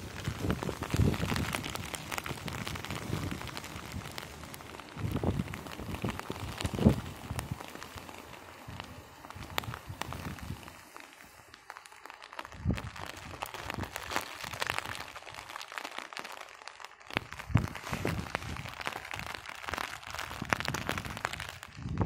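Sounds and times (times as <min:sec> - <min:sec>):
raindrops ticking and crackling: 0:00.0 - 0:22.0.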